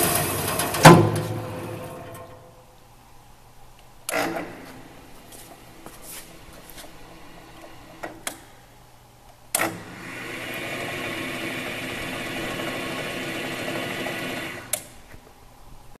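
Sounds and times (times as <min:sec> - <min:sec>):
power feeder motor running: 0:09.6 - 0:14.9.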